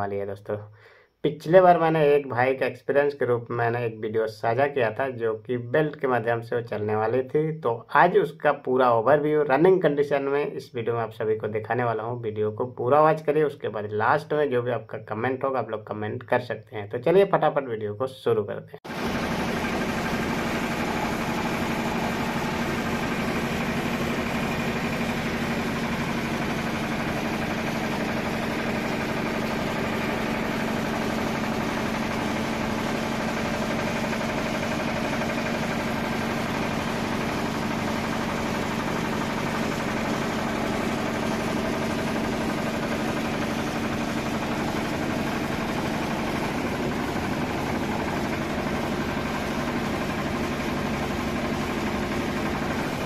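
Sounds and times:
diesel engine running: 0:18.9 - 0:53.0
rice huller milling: 0:18.9 - 0:53.0.

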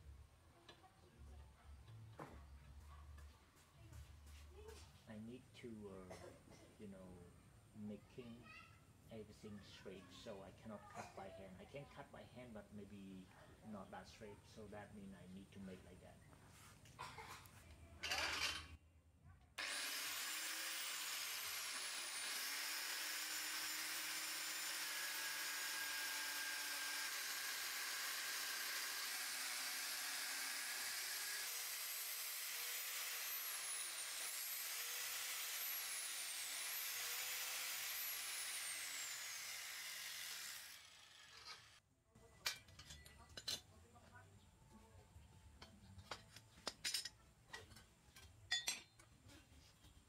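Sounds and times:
angle grinder cutting steel: 0:18.0 - 0:18.7, 0:19.6 - 0:41.8.

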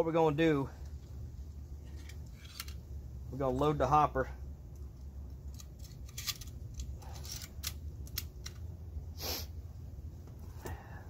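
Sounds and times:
staple gun clicks and rattles: 0:05.3 - 0:08.7.

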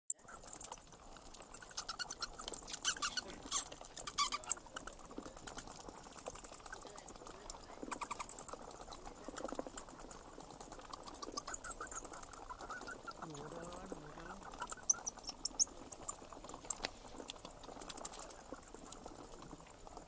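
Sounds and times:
insects chirping: 0:00.1 - 0:20.0.

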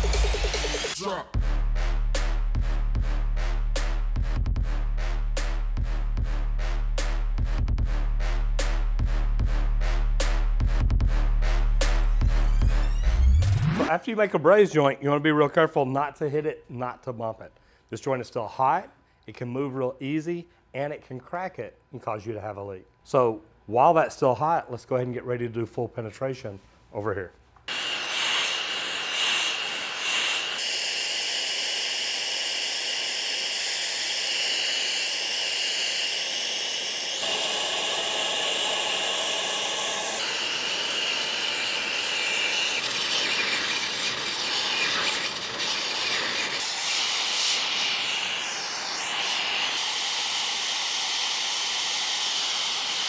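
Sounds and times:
torch flame hissing: 0:27.7 - 0:53.0.

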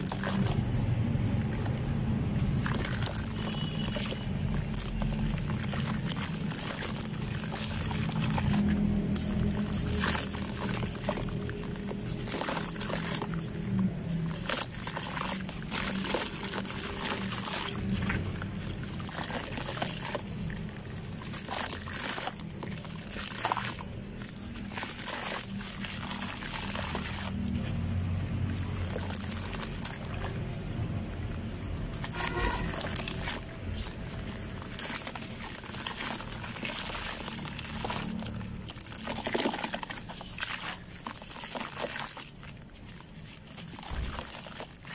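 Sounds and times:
hands squelching in sludge: 0:00.0 - 0:44.9.

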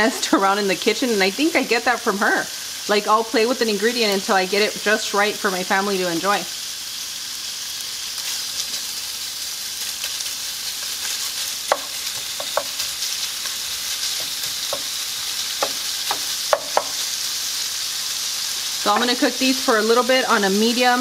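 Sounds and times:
bacon sizzling in a skillet: 0:00.0 - 0:21.0.

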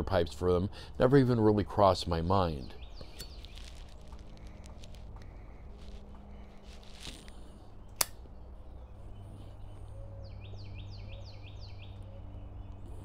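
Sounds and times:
bird chirping: 0:02.2 - 0:04.7, 0:07.6 - 0:13.0.

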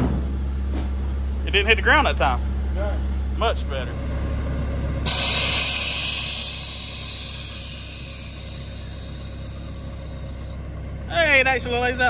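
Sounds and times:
loud hiss of air venting: 0:05.1 - 0:10.6.

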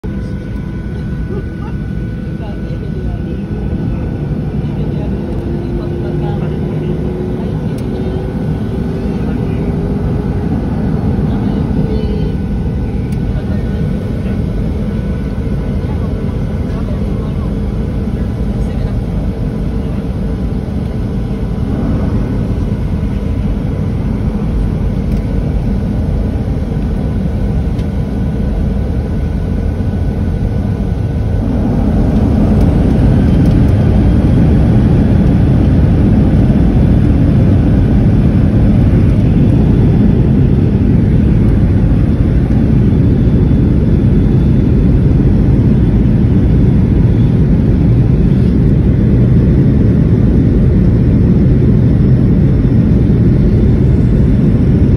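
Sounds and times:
faint engine whine: 0:00.0 - 0:54.9
jet engine rumble in cabin: 0:00.0 - 0:54.9.

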